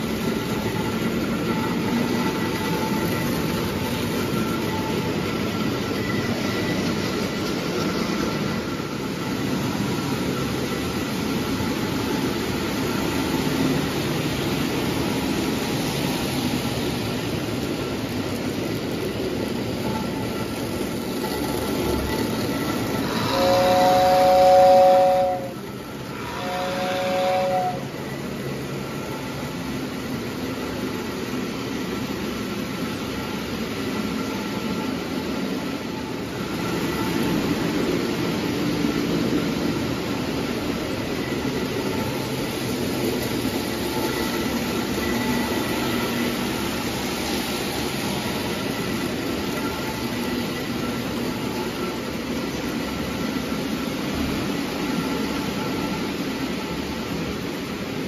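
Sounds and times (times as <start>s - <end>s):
toy train wheels rumbling: 0.0s - 58.0s
two-tone toy train whistle: 23.0s - 28.0s.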